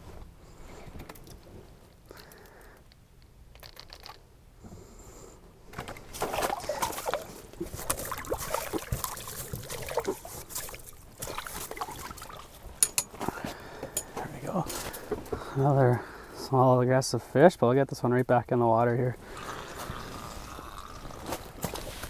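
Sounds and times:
water sloshing and splashing: 5.8s - 12.8s, 21.3s - 22.0s.

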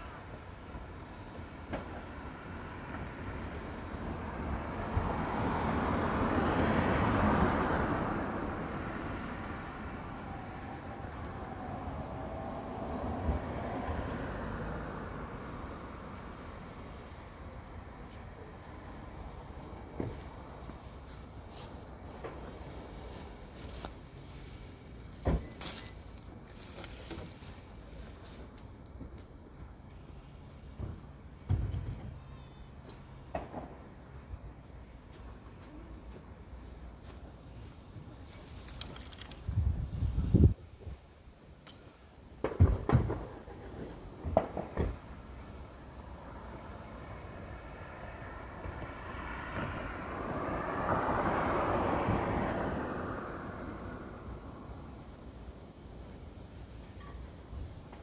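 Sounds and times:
outdoor background noise: 0.0s - 58.0s
vehicle passing by: 2.2s - 40.6s, 43.3s - 55.4s
loud thump: 42.4s - 43.3s.

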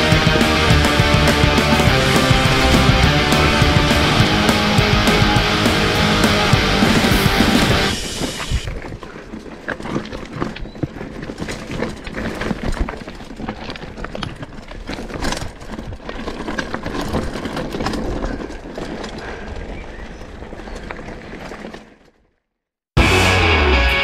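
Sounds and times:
bike chain and frame rattling: 8.0s - 22.2s
tyres crunching over rocks: 8.4s - 22.2s.

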